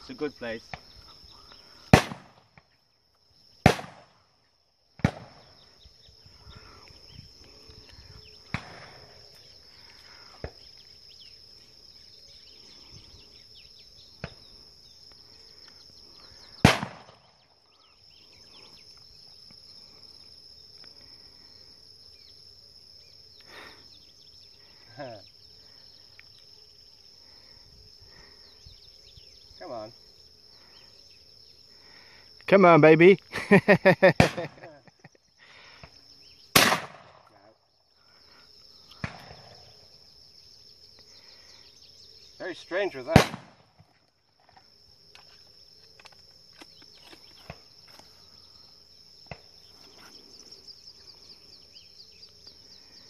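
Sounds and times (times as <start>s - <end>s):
high insect buzz: 0.0s - 53.0s
shotgun shots: 1.9s - 2.5s, 3.6s - 4.2s, 5.0s - 5.4s, 16.6s - 17.2s, 34.2s - 34.6s, 36.6s - 37.2s, 43.1s - 43.7s
distant gunshots: 1.9s - 2.6s, 3.6s - 4.2s, 5.0s - 5.5s, 8.5s - 9.0s, 16.6s - 17.3s, 34.2s - 34.6s, 36.6s - 37.2s, 39.0s - 39.4s, 43.1s - 43.7s.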